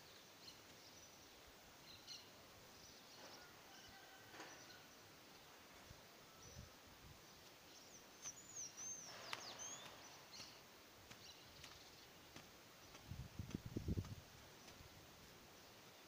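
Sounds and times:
faint low thuds: 0:11.1 - 0:14.9.

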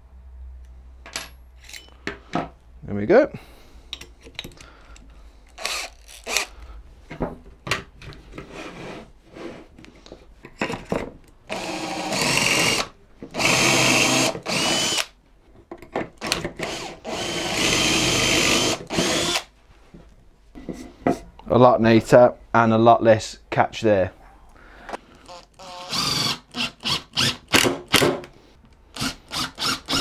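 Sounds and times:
cordless drill motor whine: 0:05.6 - 0:06.5, 0:11.5 - 0:12.8, 0:13.4 - 0:15.1, 0:16.6 - 0:19.4, 0:25.3 - 0:27.4, 0:29.0 - 0:30.0.

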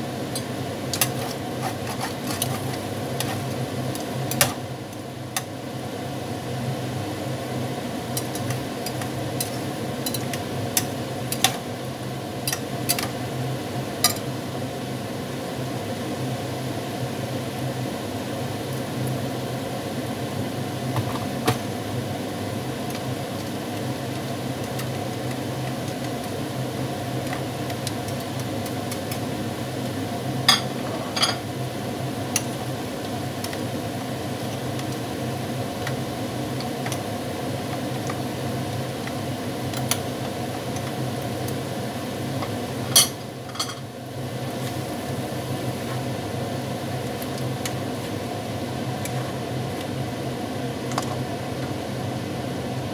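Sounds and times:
food sizzling in a wok: 0:00.0 - 0:52.9.

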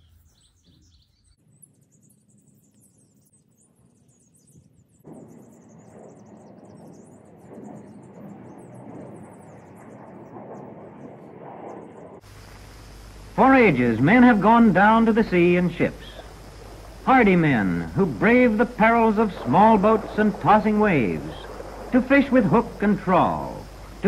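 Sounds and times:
small birds chirping: 0:00.0 - 0:11.1, 0:12.2 - 0:24.0
steady background noise: 0:12.2 - 0:24.0.

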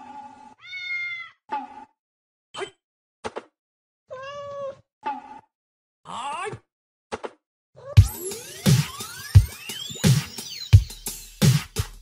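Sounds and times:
cat meowing: 0:00.6 - 0:01.4, 0:04.1 - 0:04.8.

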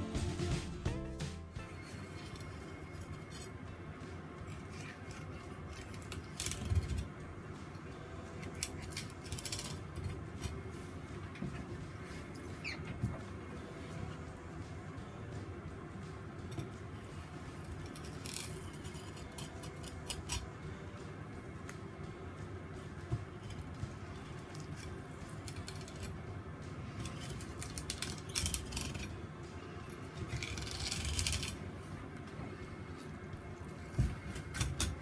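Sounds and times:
low steady hum: 0:00.0 - 0:35.0
knife scraping against fish bones: 0:17.8 - 0:20.5.

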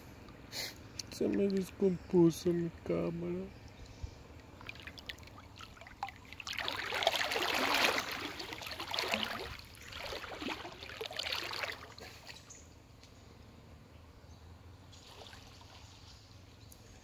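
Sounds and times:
river water splashing: 0:04.4 - 0:12.7, 0:14.9 - 0:16.6.

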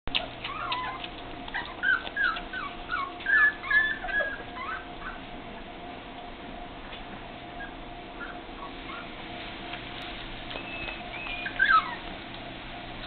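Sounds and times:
puppies whimpering: 0:00.1 - 0:05.3, 0:07.5 - 0:09.2, 0:10.5 - 0:12.2.

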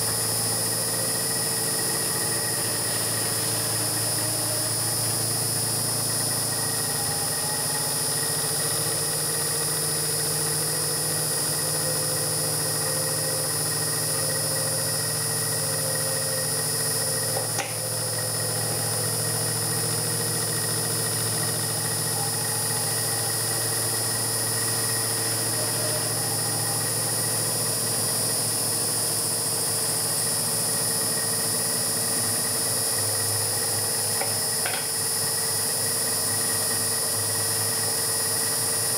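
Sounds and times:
milling machine spindle whine: 0:00.0 - 0:38.9
metal cutting noise: 0:34.0 - 0:35.0.

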